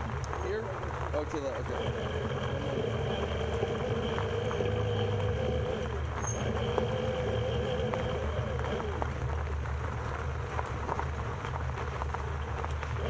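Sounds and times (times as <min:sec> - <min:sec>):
cart wheels rumbling on trail: 0:00.0 - 0:13.0
steady hum: 0:00.0 - 0:13.0.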